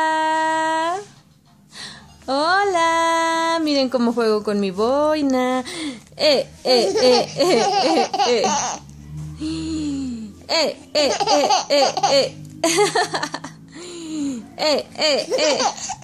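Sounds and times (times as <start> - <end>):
baby giggling: 6.7 - 8.8, 10.5 - 13.4, 14.6 - 16.0.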